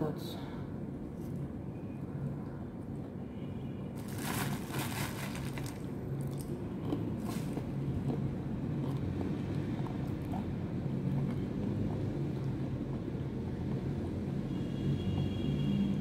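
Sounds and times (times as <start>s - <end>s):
chewing: 6.2s - 10.5s.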